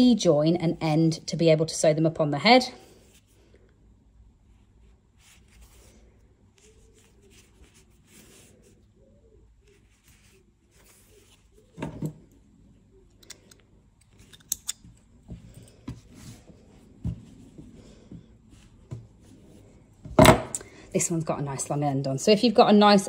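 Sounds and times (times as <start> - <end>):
yarn rustling: 4.7 - 11.8.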